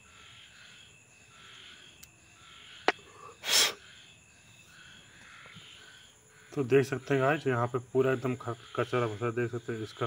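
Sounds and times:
faint insect chirring: 0:00.0 - 0:10.0
sharp puff of breath: 0:03.1 - 0:03.8.

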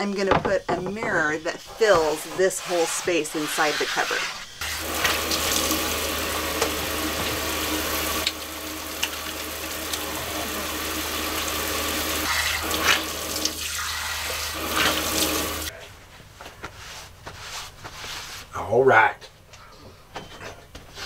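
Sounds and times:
faucet spraying into metal sink: 0:04.6 - 0:15.7.

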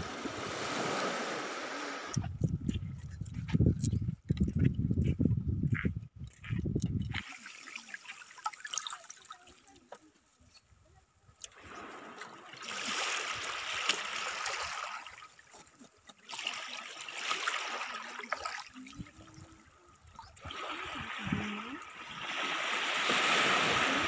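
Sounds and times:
seawater sloshing: 0:11.4 - 0:24.0.

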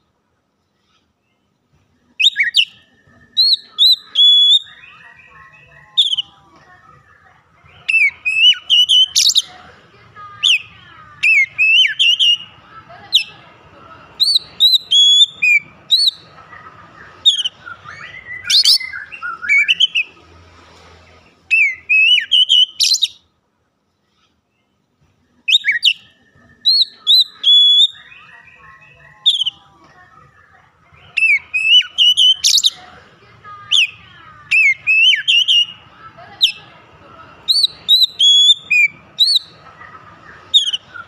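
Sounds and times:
bird singing whistled notes: 0:02.2 - 0:06.3, 0:07.8 - 0:09.5, 0:11.2 - 0:12.5, 0:14.2 - 0:16.2, 0:17.2 - 0:20.1, 0:21.5 - 0:23.2, 0:25.5 - 0:29.6, 0:31.1 - 0:32.8, 0:34.5 - 0:35.8, 0:37.5 - 0:39.5, 0:40.5 - 0:41.0.

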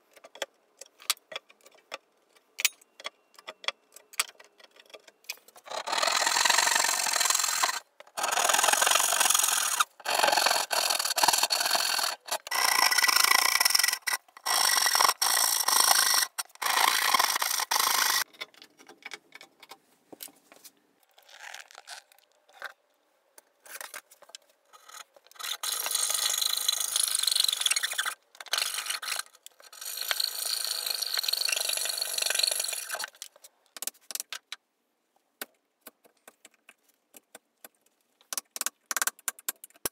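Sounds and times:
knocks and handling sounds: 0:00.0 - 0:05.7, 0:18.2 - 0:25.9
hand saw cutting wood: 0:05.7 - 0:18.2.

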